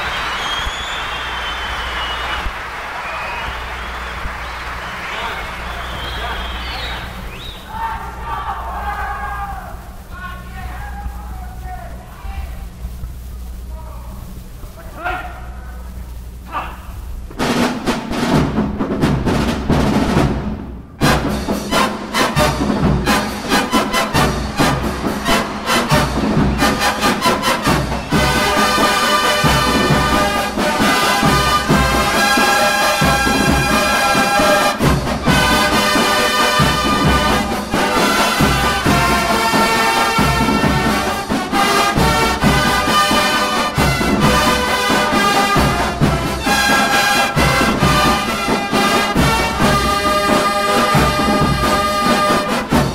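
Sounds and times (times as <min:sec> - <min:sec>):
rapid drum strokes: 0:03.6 - 0:52.9
sustained brass chords: 0:21.0 - 0:52.9.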